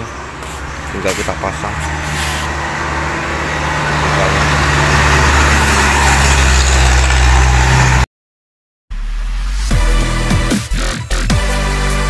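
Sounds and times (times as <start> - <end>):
engine idling: 0.0 - 7.2.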